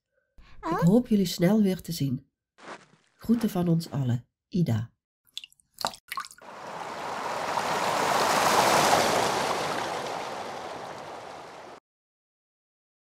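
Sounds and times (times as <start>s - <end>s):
water dripping: 5.3s - 11.8s
swirling water rushing: 6.4s - 11.8s.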